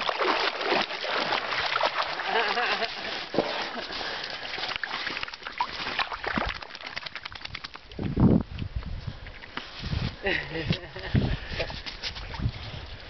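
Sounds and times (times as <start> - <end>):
dogs shaking off water: 0.0 - 8.0.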